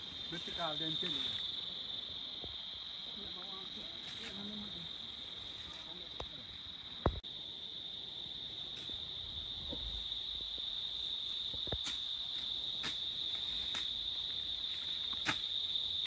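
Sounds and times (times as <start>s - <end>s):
insects shrilling: 0.0s - 2.4s, 10.1s - 16.0s.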